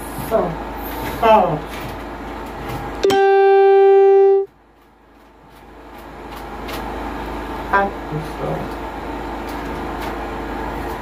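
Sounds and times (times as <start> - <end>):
loud horn-like tone: 3.0 - 4.5.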